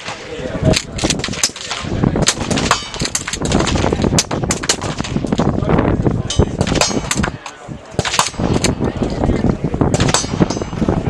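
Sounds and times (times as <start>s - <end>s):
suppressed gunshots: 0.8s - 5.5s, 8.0s - 8.8s, 9.9s - 10.7s.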